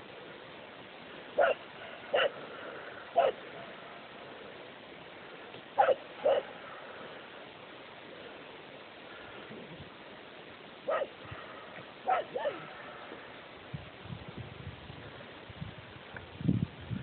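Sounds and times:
steady hiss: 0:00.0 - 0:17.0
dog barking: 0:01.4 - 0:02.4, 0:03.1 - 0:03.7, 0:05.8 - 0:06.6, 0:10.9 - 0:13.1.

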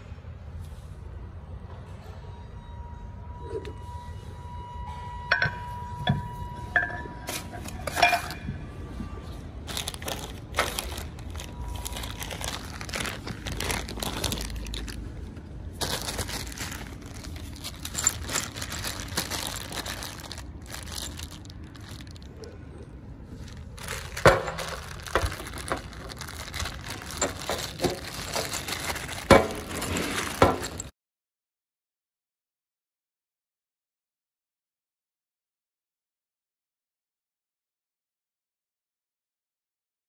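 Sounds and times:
metal bolts clinking: 0:06.8 - 0:08.4, 0:27.1 - 0:30.9
plastic bag crinkling: 0:09.6 - 0:22.6, 0:23.3 - 0:30.9
bag knocking on steel worktop: 0:24.2 - 0:26.6.

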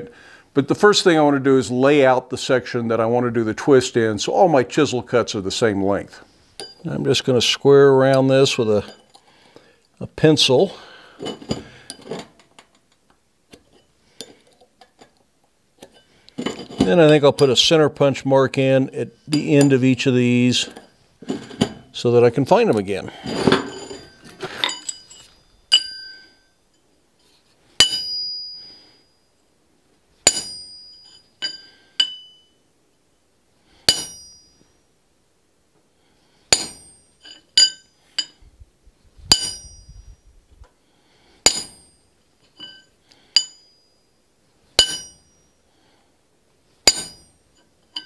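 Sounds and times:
hammer striking metal punch: 0:27.8 - 0:28.6, 0:30.2 - 0:32.5, 0:33.9 - 0:34.6, 0:36.5 - 0:38.3, 0:39.3 - 0:40.0, 0:41.4 - 0:42.0, 0:44.8 - 0:45.3, 0:46.8 - 0:47.4.

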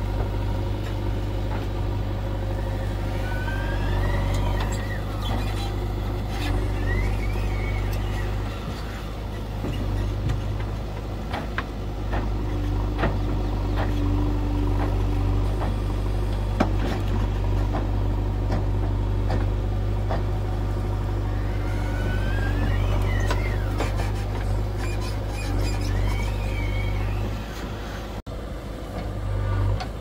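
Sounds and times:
heavy diesel engine running: 0:00.0 - 0:30.0
high squeal: 0:02.6 - 0:09.0, 0:21.2 - 0:27.7.

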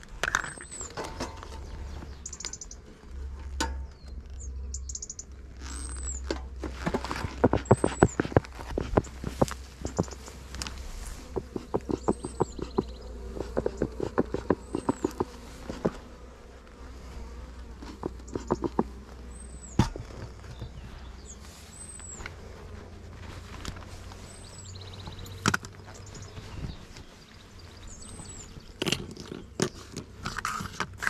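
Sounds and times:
honeybees buzzing: 0:00.0 - 0:31.0
high chirp: 0:02.1 - 0:02.8, 0:04.4 - 0:06.2.

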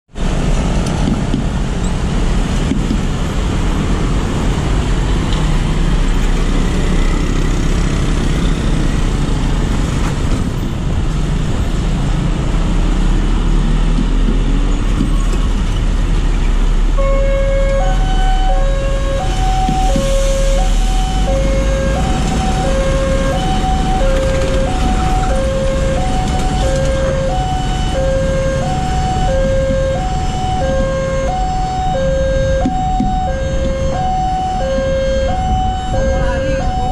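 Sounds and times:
vehicle engines passing: 0:00.1 - 0:36.9
two-tone crossing warning alarm: 0:16.9 - 0:36.9.

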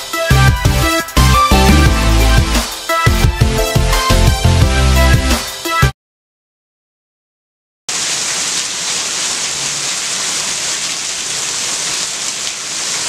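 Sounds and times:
heavy rain falling: 0:07.9 - 0:13.0.

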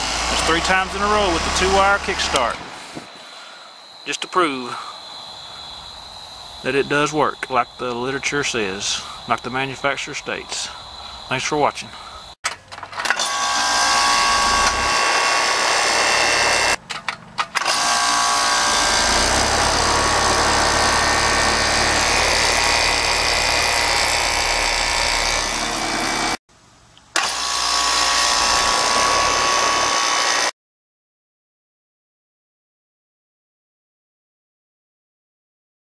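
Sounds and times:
heat pump unit running: 0:13.1 - 0:16.8, 0:17.6 - 0:26.4.

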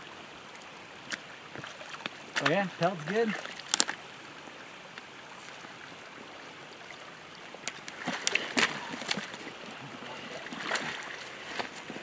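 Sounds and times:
water sloshing and splashing: 0:00.4 - 0:12.0.

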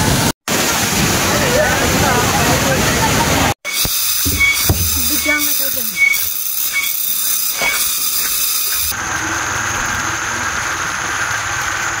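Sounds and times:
high-pitched forest hiss: 0:03.7 - 0:08.9.

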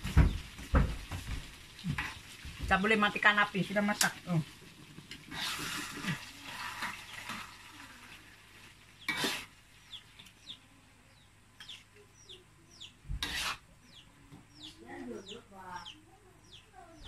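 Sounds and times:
metal spatula scraping a wok: 0:05.2 - 0:07.6, 0:09.0 - 0:09.6, 0:13.2 - 0:13.6
bird peeping: 0:09.8 - 0:13.0, 0:13.8 - 0:17.0.

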